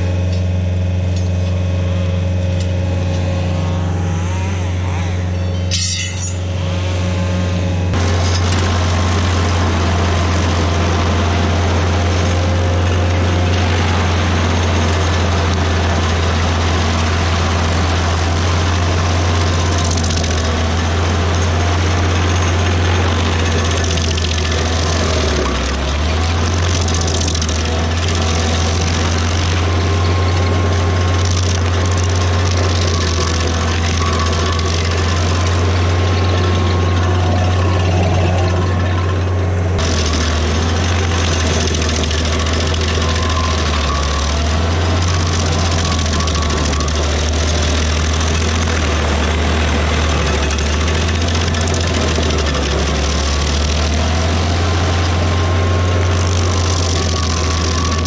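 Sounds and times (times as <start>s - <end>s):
large engine humming: 0.0s - 58.0s.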